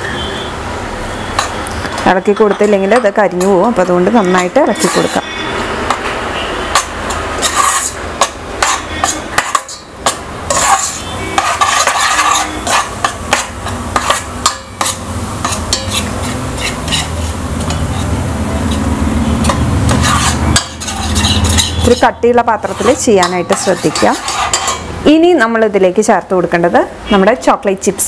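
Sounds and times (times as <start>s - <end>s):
spoon clinking against pot: 1.4s - 5.3s, 6.7s - 24.9s
spoon scraping peanut butter: 3.4s - 5.2s, 6.8s - 24.9s.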